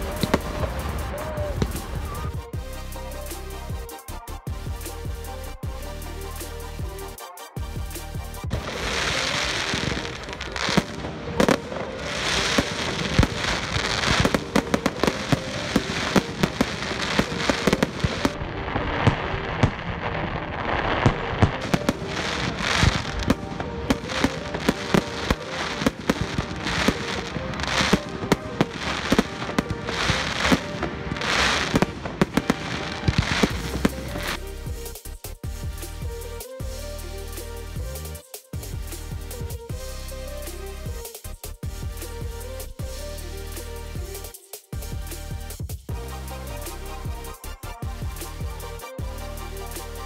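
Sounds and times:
firework bangs: 0.0 - 2.3, 8.5 - 34.4
fireworks crackling and fizzing: 0.0 - 2.6, 8.5 - 35.0.

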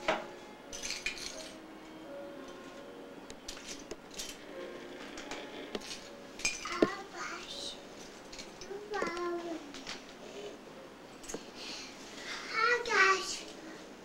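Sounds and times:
toy pieces clicking and clattering: 0.8 - 1.6, 3.5 - 4.5, 5.1 - 6.9.

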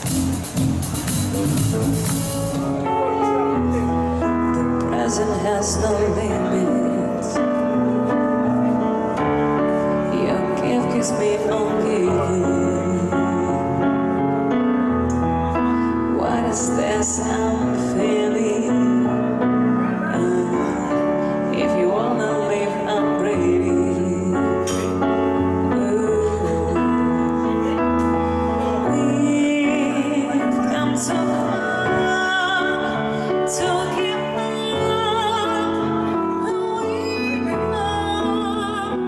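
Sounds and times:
grand piano chords: 0.0 - 39.0
woman singing with vibrato: 4.9 - 7.5, 10.0 - 14.0, 16.1 - 27.5, 28.7 - 39.0.

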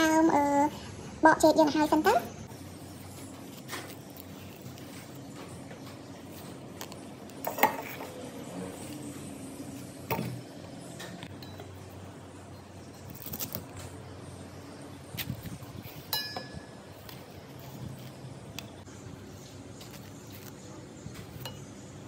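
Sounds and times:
kitchen clinks and knocks: 16.1 - 16.7
ringing metal clink: 16.1 - 16.7.

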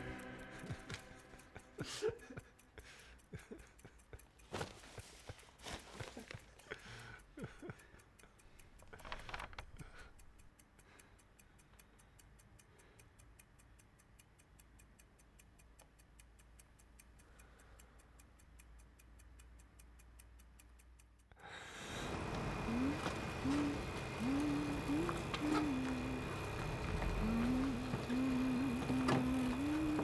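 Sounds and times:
clock ticking: 0.0 - 30.0.

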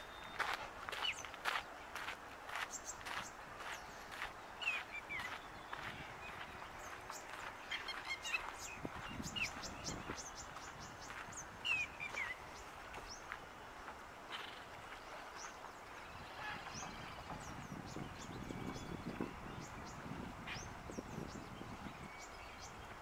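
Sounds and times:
steady outdoor hiss: 0.0 - 23.0.

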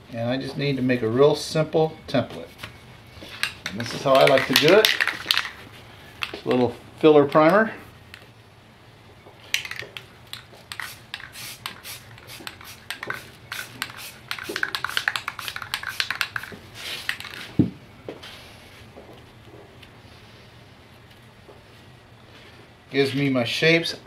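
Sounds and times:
aerosol can mixing ball rattling: 3.3 - 6.6, 9.5 - 17.5.

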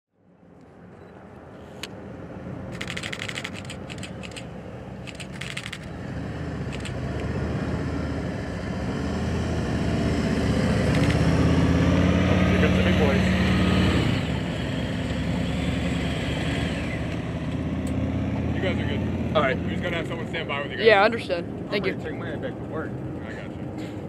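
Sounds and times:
motorcycle engines passing: 2.2 - 24.0
rapid clicking: 2.8 - 5.9.

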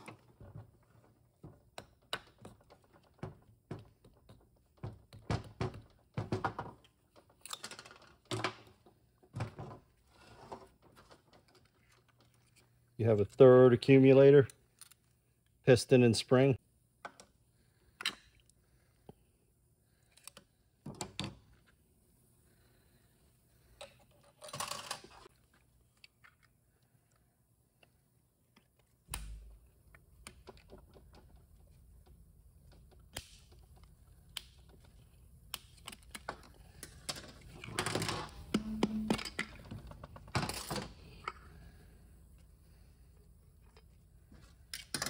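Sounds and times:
metal parts and tools clattering: 23.8 - 25.3.

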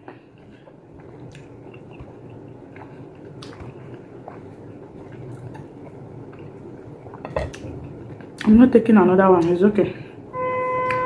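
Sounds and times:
chewing juicy fruit: 0.0 - 8.5.

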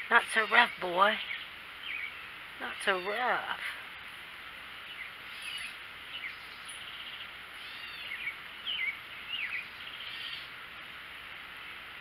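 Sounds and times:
songbirds chirping and singing: 0.0 - 3.6, 4.7 - 10.6
steady outdoor hiss: 0.0 - 12.0
fast buzzy bird trills: 4.8 - 10.5.

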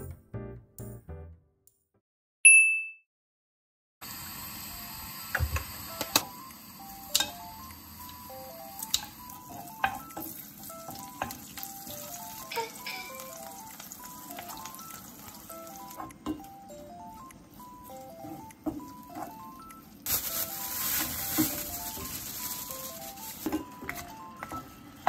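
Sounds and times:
scallions sizzling in oil: 4.1 - 16.1, 20.1 - 23.6.

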